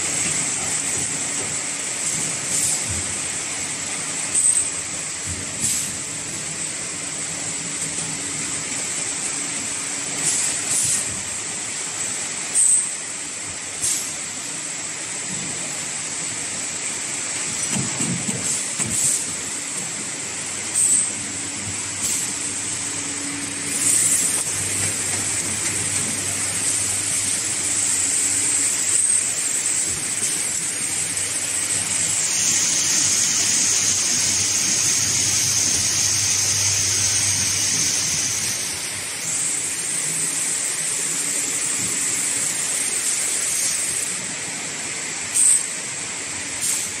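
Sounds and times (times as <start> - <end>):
machine mechanical hum: 0.0 - 47.0
high continuous hiss: 18.4 - 47.0.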